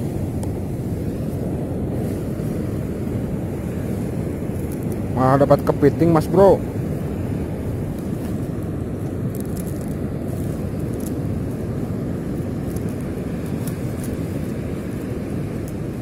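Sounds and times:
surf rumbling: 0.0s - 16.0s
wind at shoreline: 0.0s - 16.0s.

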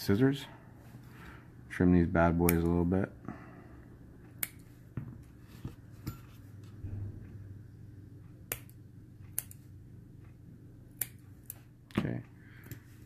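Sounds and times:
scissors snipping: 4.4s - 4.6s, 8.5s - 9.6s, 10.9s - 11.6s.

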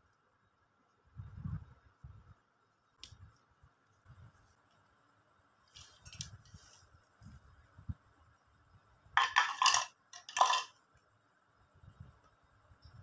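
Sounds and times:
fox nuts clattering into bowl: 9.2s - 10.8s.

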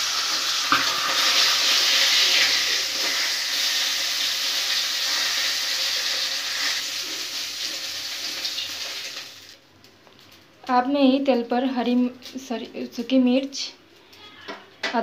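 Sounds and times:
fish frying in hot oil: 0.0s - 9.6s.

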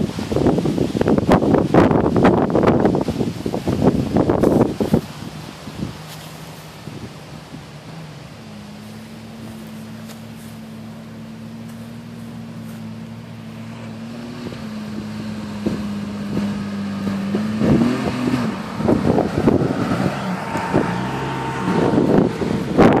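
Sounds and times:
car engine running: 0.0s - 23.0s.

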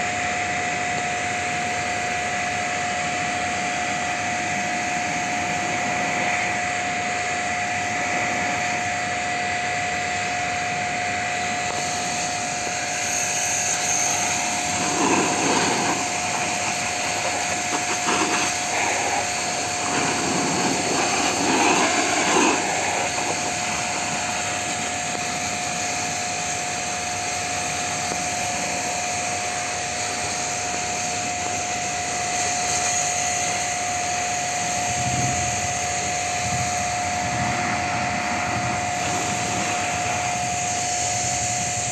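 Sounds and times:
pressure washer whine: 0.0s - 41.9s
water jet hissing on metal: 11.6s - 41.9s.

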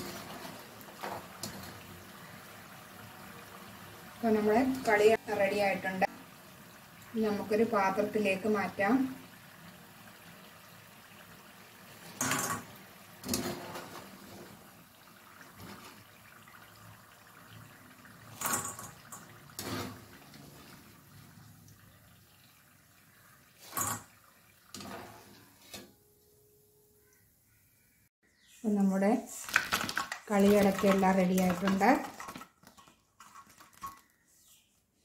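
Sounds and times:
oil sizzling: 0.0s - 27.3s, 29.3s - 34.1s
wire skimmer clattering: 29.4s - 34.2s.

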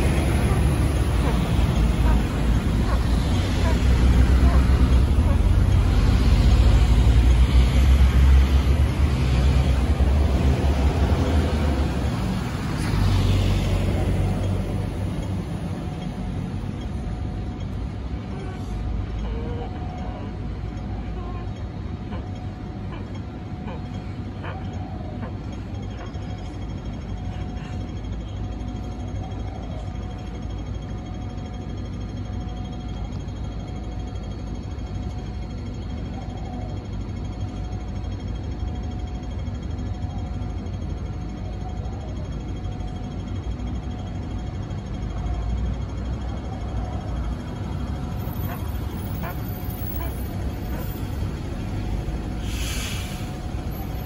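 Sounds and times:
vehicle passing: 0.0s - 15.9s
heavy vehicle rumbling past: 0.0s - 16.8s, 45.1s - 54.0s
thin constant whine: 0.0s - 54.0s
traffic hum: 0.0s - 54.0s.

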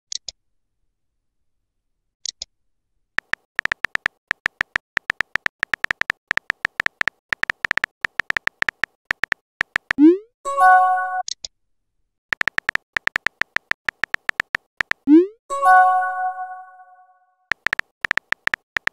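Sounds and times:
short high typing beeps: 3.2s - 10.2s, 12.3s - 15.4s, 17.5s - 18.9s.

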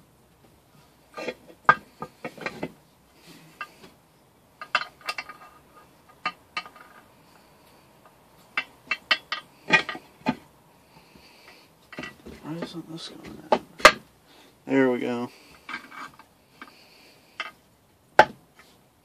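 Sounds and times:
metal parts clinking: 4.6s - 5.6s.

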